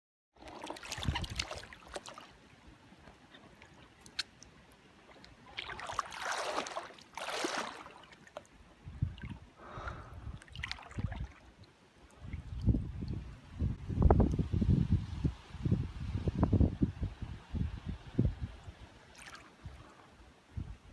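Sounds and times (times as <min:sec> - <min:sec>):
paddle splashing in water: 0:00.4 - 0:02.4, 0:05.0 - 0:08.6, 0:10.4 - 0:11.5, 0:19.1 - 0:19.5
wind on microphone: 0:00.8 - 0:01.6, 0:08.8 - 0:11.4, 0:12.2 - 0:19.0, 0:19.6 - 0:20.9.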